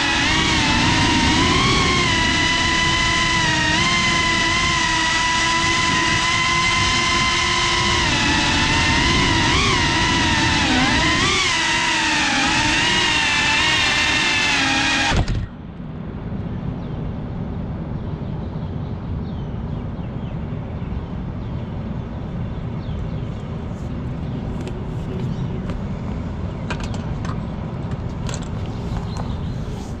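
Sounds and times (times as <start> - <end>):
drone motors whining: 0.0 - 15.8.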